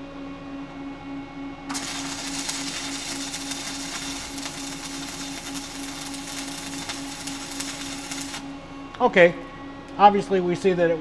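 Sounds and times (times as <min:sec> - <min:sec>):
sharp welding pops: 0:01.7 - 0:08.4
welding arc crackling hiss: 0:01.7 - 0:08.4.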